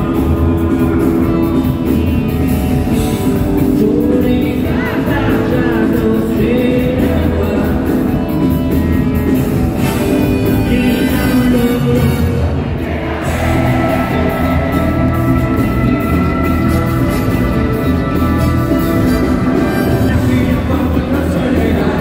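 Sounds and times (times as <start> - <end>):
live rock band: 0.0 - 22.0
man singing: 3.6 - 9.1, 9.8 - 16.5, 19.0 - 22.0.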